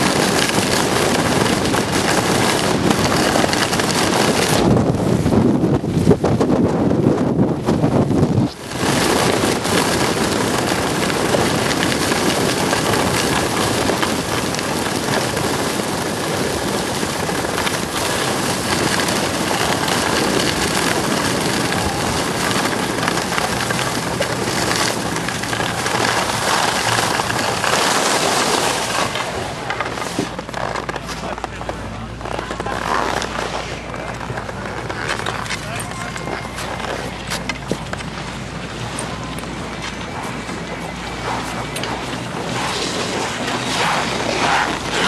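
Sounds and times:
wind on microphone: 0.0s - 45.0s
skis hissing over packed snow: 8.6s - 29.4s.

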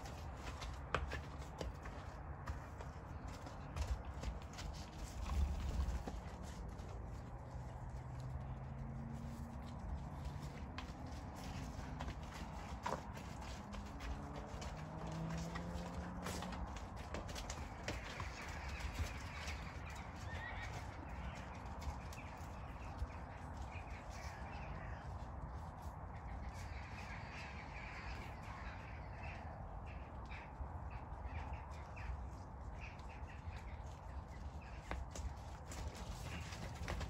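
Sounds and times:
hooves thudding on soft ground: 0.0s - 37.0s.

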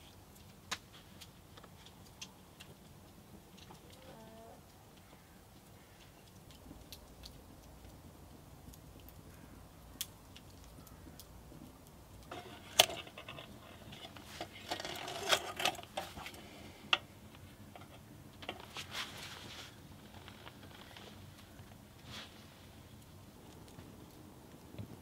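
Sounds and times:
faint scattered ticks: 0.0s - 14.0s
metal lantern rattling and clicking: 12.2s - 18.8s.

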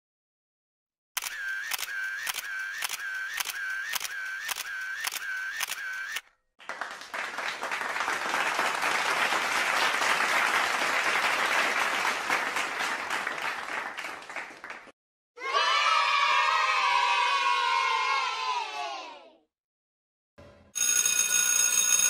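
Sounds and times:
camera shutter clicking: 1.2s - 6.2s
audience applauding: 6.6s - 15.0s.

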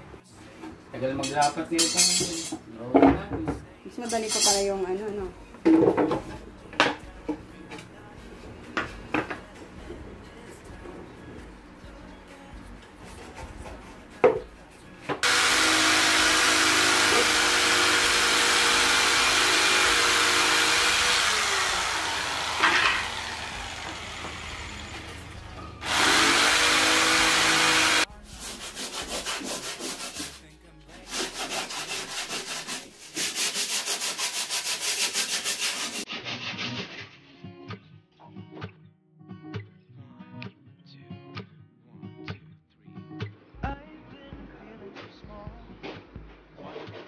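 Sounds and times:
power saw cutting wood: 15.2s - 28.1s, 31.1s - 36.1s
guitar music: 37.2s - 46.5s.

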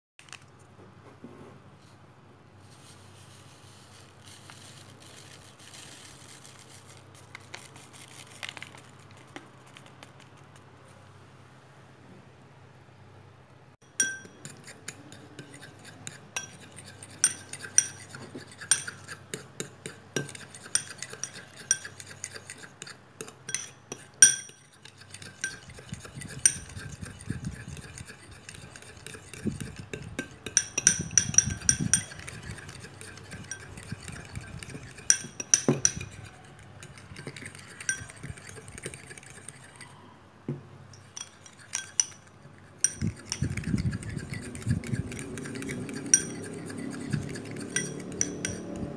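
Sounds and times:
fork whisking in ceramic bowl: 13.9s - 40.0s, 41.0s - 48.9s.

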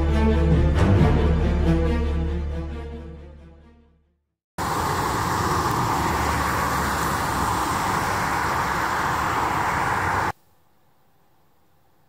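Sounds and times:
vehicles passing on wet road: 4.6s - 10.4s.

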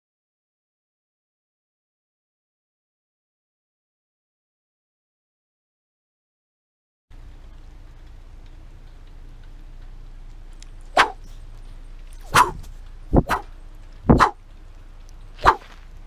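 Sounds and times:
dog barking: 13.2s - 13.5s, 14.2s - 14.4s.

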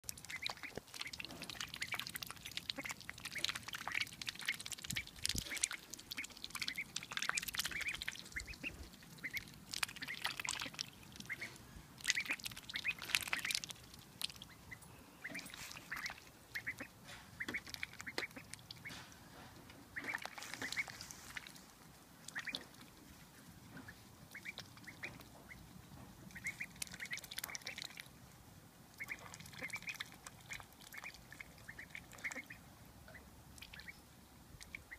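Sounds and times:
small water splashes: 0.0s - 19.1s, 19.9s - 23.2s, 23.8s - 25.6s, 26.2s - 28.2s, 28.9s - 32.6s, 33.5s - 34.9s
duckling high calls: 5.5s - 13.6s, 14.4s - 19.0s, 26.3s - 27.8s, 31.7s - 34.0s.

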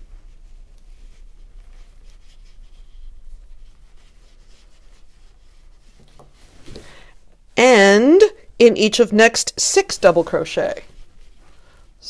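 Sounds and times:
yarn rustling on crochet hook: 0.0s - 6.8s, 9.6s - 12.0s
low steady hum: 0.0s - 12.0s.

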